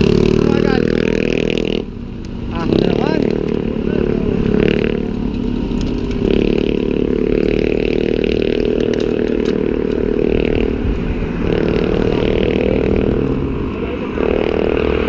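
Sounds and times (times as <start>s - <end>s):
passing vehicle engine: 0.0s - 15.0s
bike rattling: 2.4s - 15.0s
wind on microphone: 5.5s - 15.0s.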